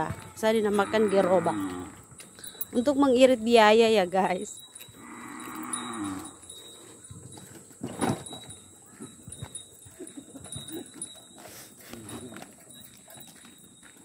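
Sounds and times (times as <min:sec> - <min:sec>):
hooves and cart clattering: 0:00.0 - 0:14.0
cow lowing: 0:05.0 - 0:07.0.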